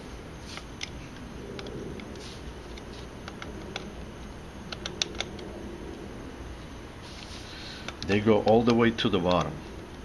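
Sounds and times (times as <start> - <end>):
light metallic clicks and taps: 7.8 - 9.6.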